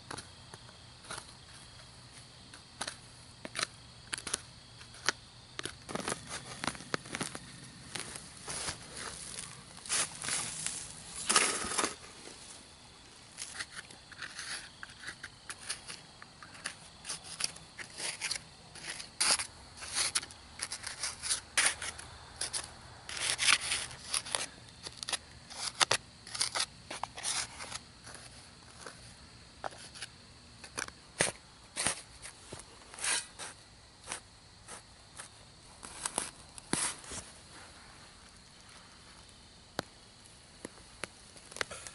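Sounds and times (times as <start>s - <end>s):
hand trowel scraping soil: 1.0s - 12.6s, 13.3s - 38.0s
shovel throwing out soil: 8.4s - 12.4s, 30.7s - 32.4s.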